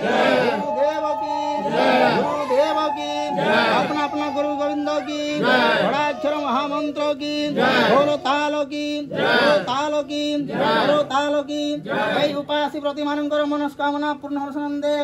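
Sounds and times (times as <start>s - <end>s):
devotional chanting: 0.0s - 12.8s.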